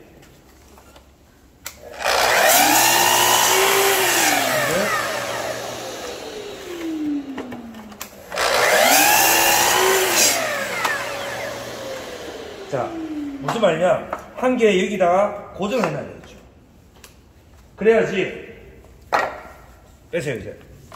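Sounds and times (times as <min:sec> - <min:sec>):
saw blade cutting wood: 0:01.9 - 0:07.0, 0:08.3 - 0:13.7
miter saw motor whining: 0:01.9 - 0:13.8.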